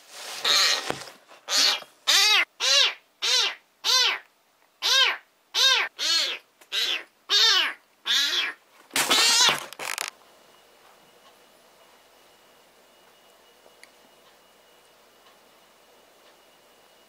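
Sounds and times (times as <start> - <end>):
cat meowing: 1.5 - 9.6.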